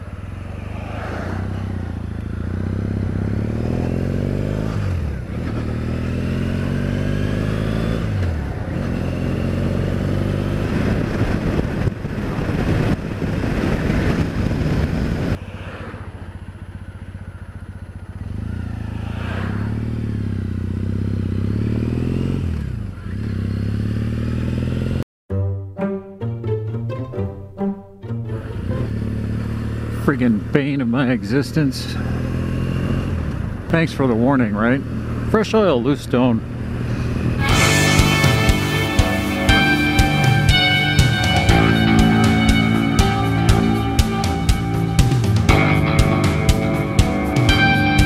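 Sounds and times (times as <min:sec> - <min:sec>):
motorcycle engine shifting gears: 0:00.0 - 0:25.0, 0:28.2 - 0:48.0
wind rushing: 0:10.4 - 0:16.2.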